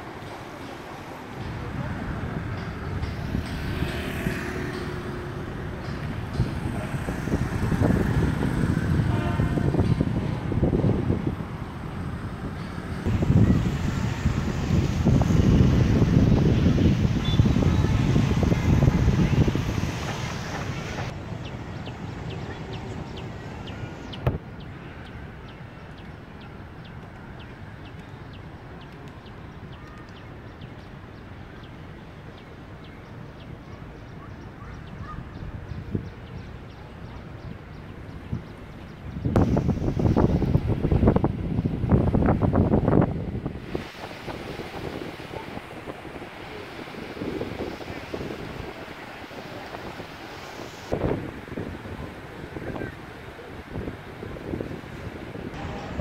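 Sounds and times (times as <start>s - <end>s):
outdoor background: 0.0s - 56.0s
motorbikes and cars passing: 1.3s - 25.0s, 52.5s - 56.0s
low wind rumble on microphone: 1.4s - 29.5s, 34.6s - 56.0s.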